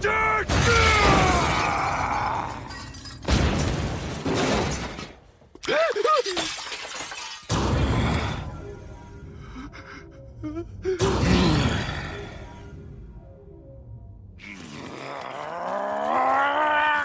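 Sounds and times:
man yelling: 0.0s - 1.9s
china plates shattering: 2.4s - 3.3s, 6.2s - 7.5s.

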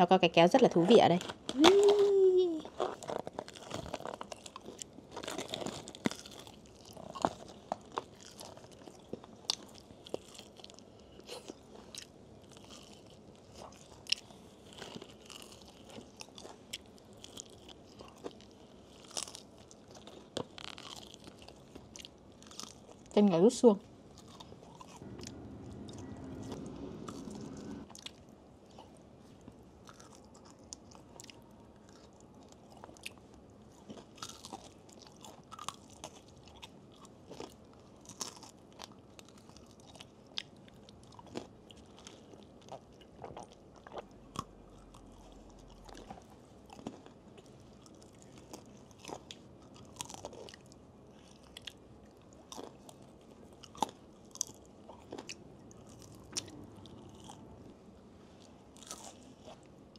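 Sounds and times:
chewing crispy food: 0.5s - 59.9s.

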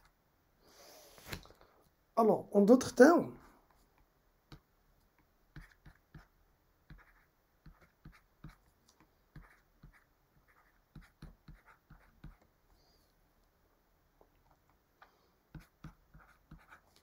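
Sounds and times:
stylus tapping on drawing tablet: 10.9s - 12.5s.

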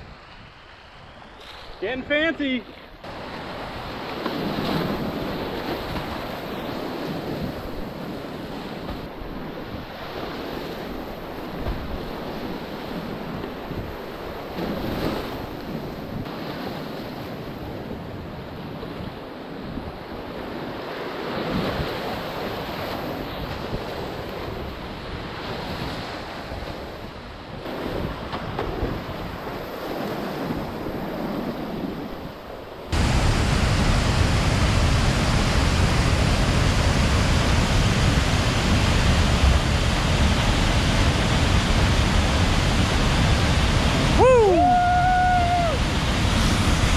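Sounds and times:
waterfall roar: 32.9s - 46.9s
whitewater rushing: 32.9s - 46.9s.

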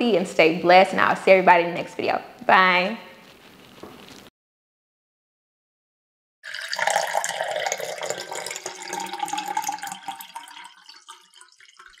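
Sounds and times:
tea pouring into teacup: 6.4s - 12.0s.

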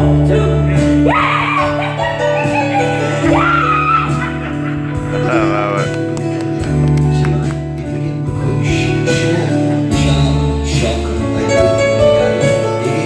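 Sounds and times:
live rock band playing: 0.8s - 13.0s.

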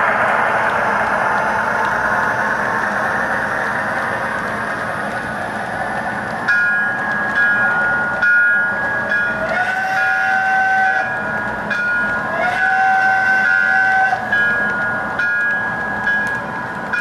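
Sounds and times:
model freight cars rumbling: 0.0s - 17.0s
two-note locomotive horn blasts: 9.4s - 11.2s, 12.4s - 14.3s.

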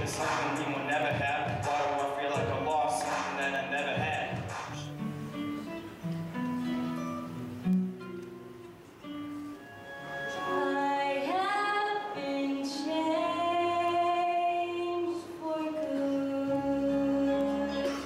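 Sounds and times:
soft acoustic guitar notes: 3.7s - 18.0s
girl singing into microphone: 10.4s - 18.0s.

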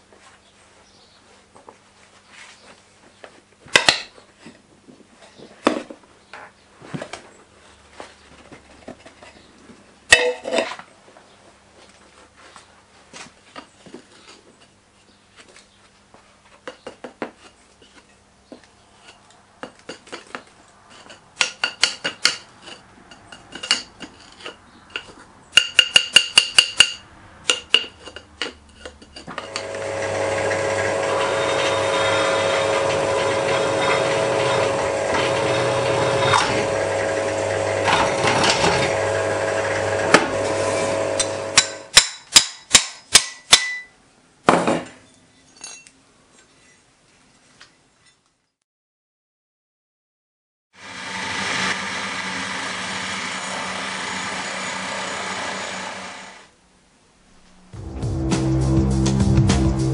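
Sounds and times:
pillar drill drilling metal: 29.4s - 41.9s, 50.8s - 56.5s
short scrape: 40.3s - 41.4s
sharp metallic knocks and clinks: 44.8s - 46.0s.

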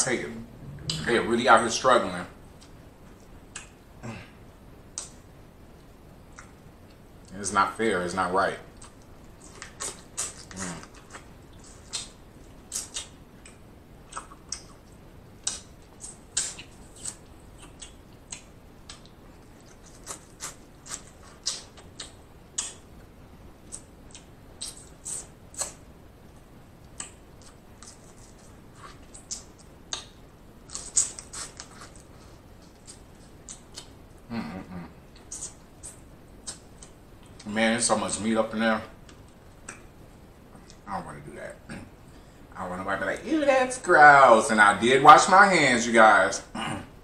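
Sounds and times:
wet lip smacks while chewing: 8.8s - 22.8s, 32.7s - 34.0s.

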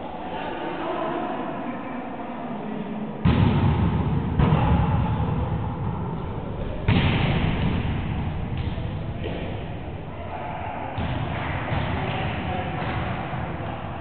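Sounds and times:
volleyball hit with echo: 3.2s - 10.1s, 10.8s - 14.0s.

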